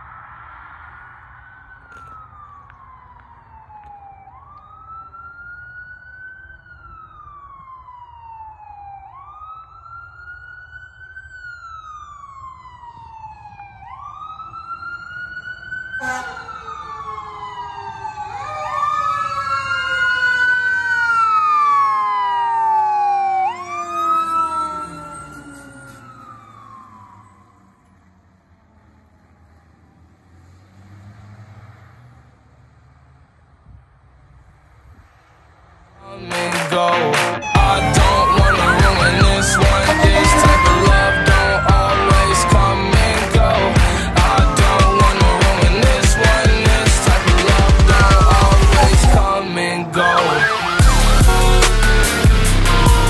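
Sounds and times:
electronic wail siren: 0.7s - 28.1s, 36.2s - 53.0s
mechanical siren: 1.2s - 28.3s, 37.2s - 53.0s
fire engine airhorns: 15.9s - 16.9s, 36.4s - 53.0s.

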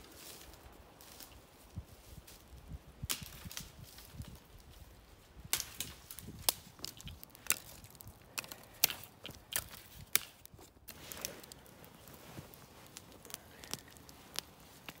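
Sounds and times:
low fire hiss: 0.0s - 15.0s
stick fire crackling: 0.0s - 15.0s.

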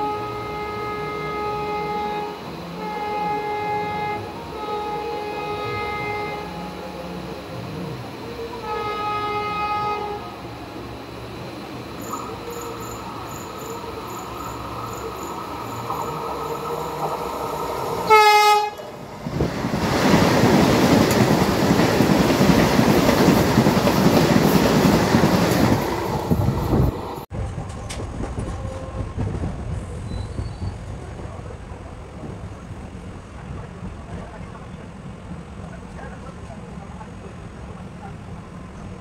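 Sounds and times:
train horn blast: 0.0s - 11.0s, 12.0s - 19.0s
train passing rush: 0.0s - 39.0s.

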